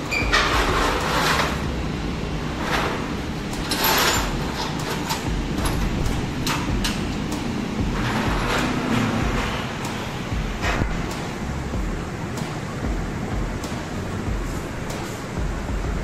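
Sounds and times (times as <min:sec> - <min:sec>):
metal tray scraping: 0:00.0 - 0:11.0
scrapes and clinks of steel pieces: 0:02.7 - 0:07.0
low rumble: 0:07.8 - 0:12.2.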